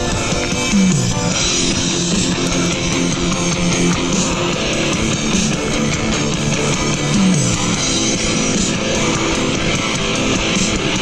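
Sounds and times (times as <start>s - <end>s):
rock music with guitar: 0.0s - 11.0s.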